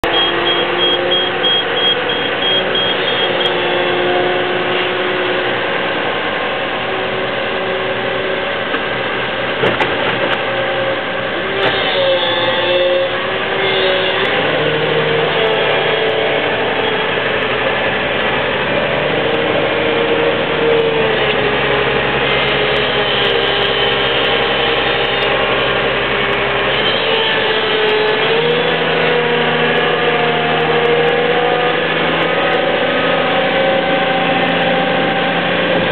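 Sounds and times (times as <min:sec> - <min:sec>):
high repeated beep: 0:00.0 - 0:03.5
excavator diesel engine under load: 0:00.0 - 0:35.9.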